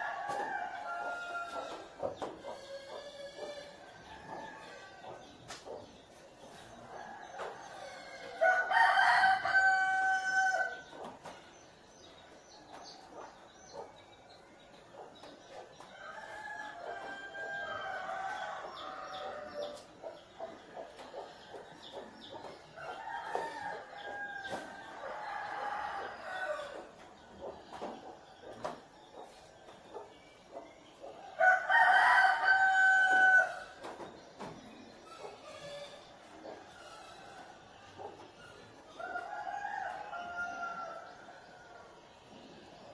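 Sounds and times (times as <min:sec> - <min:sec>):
rooster crowing: 0:07.8 - 0:10.8, 0:31.4 - 0:33.7.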